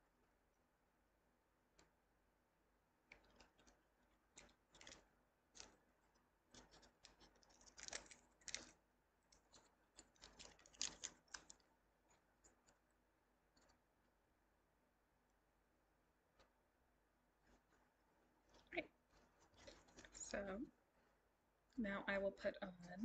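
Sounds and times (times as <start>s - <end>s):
small clicks: 3.0s - 13.8s, 18.4s - 20.6s
masking tape rustling and tearing: 4.3s - 5.8s, 6.5s - 11.6s.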